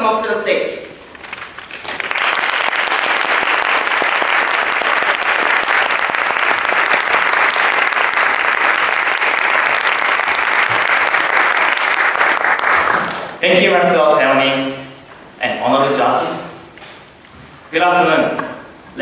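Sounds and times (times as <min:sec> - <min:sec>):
audience applauding: 0:01.2 - 0:13.4.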